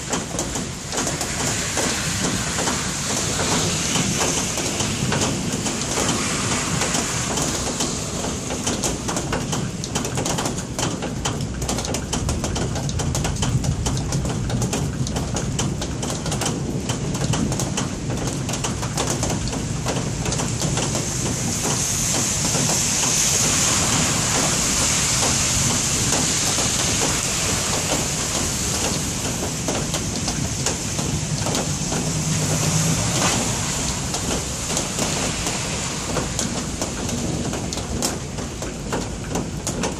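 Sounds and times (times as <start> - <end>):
rain patter: 0.0 - 39.9
low thunder rumble: 12.2 - 39.7.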